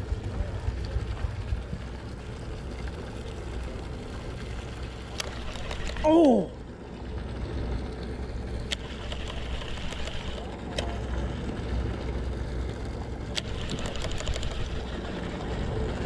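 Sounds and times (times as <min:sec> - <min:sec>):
boat rumble: 0:00.0 - 0:16.0
reel clicks and ticks: 0:04.7 - 0:06.1, 0:08.0 - 0:11.4, 0:13.0 - 0:16.0
fishing reel cranking: 0:05.1 - 0:06.1, 0:08.7 - 0:10.4, 0:13.3 - 0:15.0.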